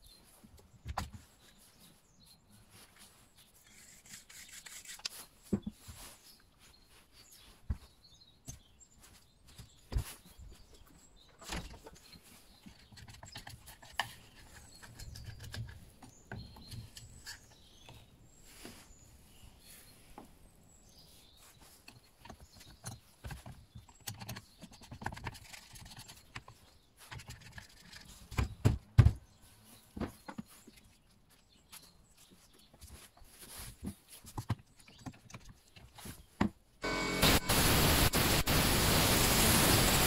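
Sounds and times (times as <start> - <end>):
thumps on cardboard: 28.3 - 29.2.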